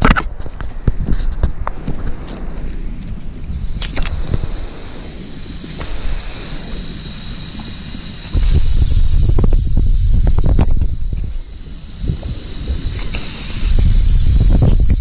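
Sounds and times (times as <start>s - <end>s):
wind rumble on microphone: 0.0s - 15.0s
rattlesnake rattling: 0.1s - 15.0s.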